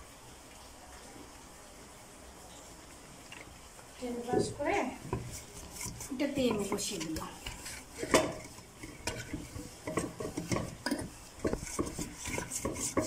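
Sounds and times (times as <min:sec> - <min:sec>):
scraping inside metal mould: 0:04.3 - 0:13.0
metal pan knocks: 0:06.4 - 0:13.0.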